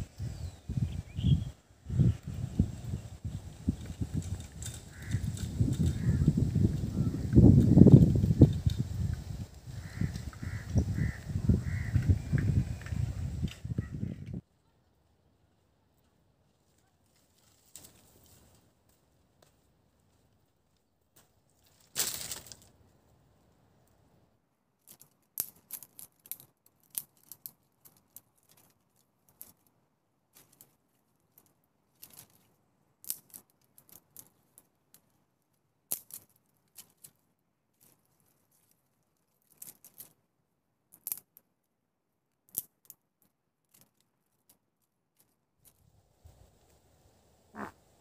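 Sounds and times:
dry twigs snapping: 3.7 - 6.3, 21.6 - 22.7
brushwood dropped with a crash: 21.2 - 22.7.

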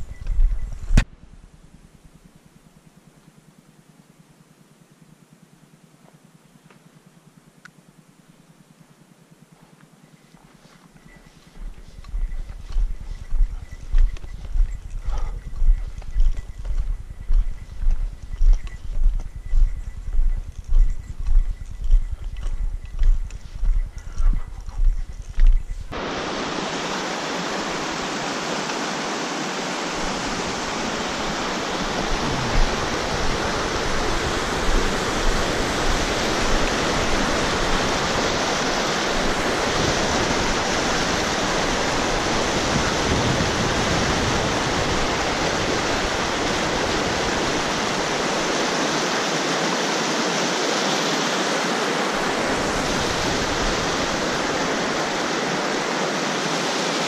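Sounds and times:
low rumble: 11.6 - 25.9
rush of flowing water: 25.9 - 57.0.

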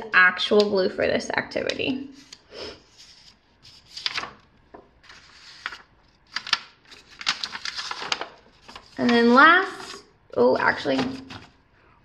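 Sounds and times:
paper rustling on wooden floor: 2.2 - 10.0.

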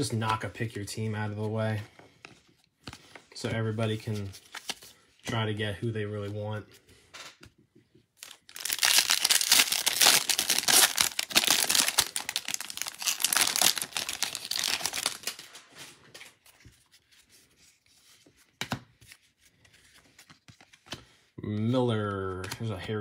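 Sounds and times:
foil wrapper crackling: 8.2 - 15.6
card stack handling: 8.2 - 17.2.

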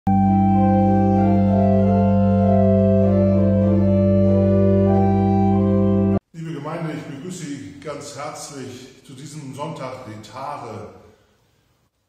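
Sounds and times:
organ playing slow chords: 0.1 - 6.3.

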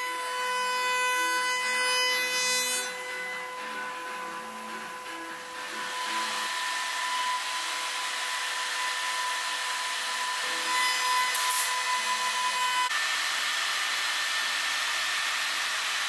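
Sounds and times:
workshop machinery hiss and whine: 2.6 - 16.0.

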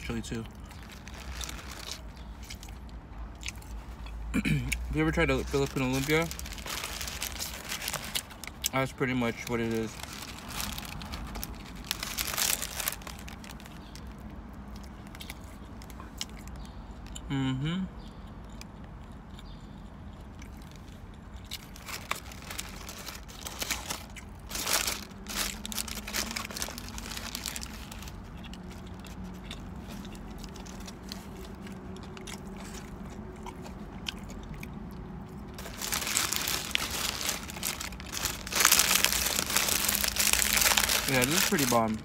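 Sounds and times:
paper wrapper crinkling: 0.0 - 2.8, 5.2 - 14.3, 21.6 - 31.8, 35.5 - 42.0
chewing and crunching: 0.1 - 17.3, 18.0 - 42.0.

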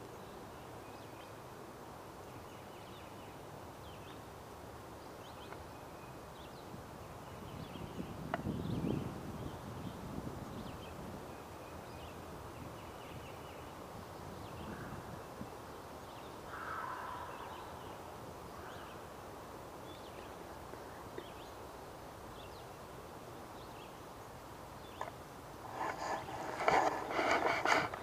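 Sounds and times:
small birds chirping: 2.2 - 28.0
large bird calling in distance: 16.5 - 19.1.

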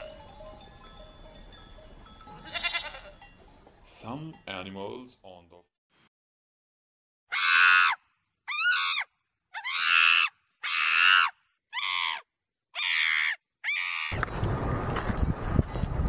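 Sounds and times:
monkeys screaming: 7.3 - 14.2.

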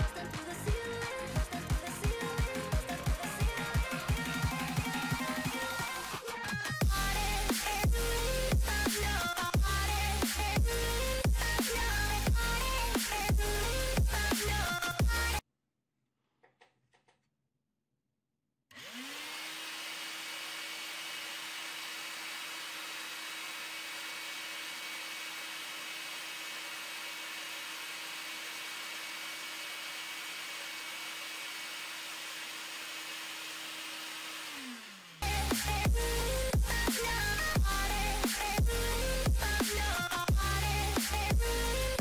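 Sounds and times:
vacuum cleaner motor whine: 18.7 - 35.2.

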